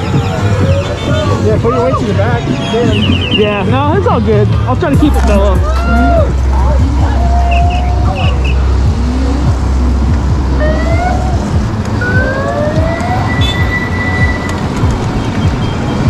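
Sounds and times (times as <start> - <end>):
rushing noise of riding: 0.0 - 16.0
electric scooter motors whining: 10.6 - 16.0.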